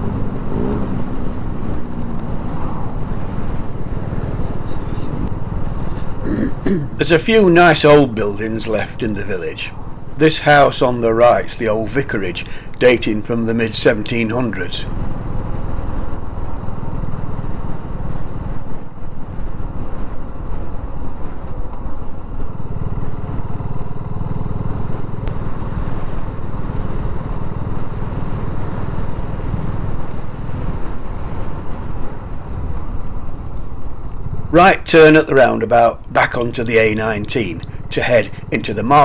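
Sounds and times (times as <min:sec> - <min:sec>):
wind and road noise: 0:00.0 - 0:39.0
motorcycle engine running: 0:14.9 - 0:34.5, 0:36.6 - 0:39.0.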